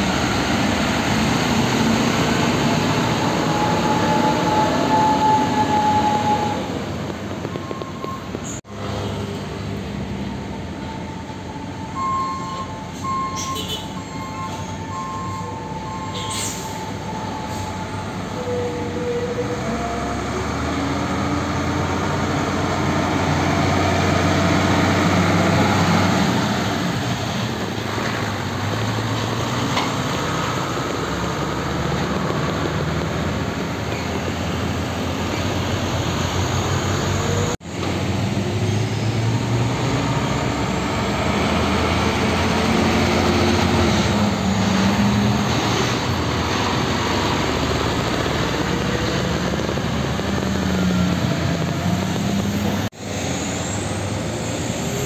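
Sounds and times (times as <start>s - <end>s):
trailer rumbling and rattling: 0.0s - 55.0s
truck engine running: 21.0s - 55.0s.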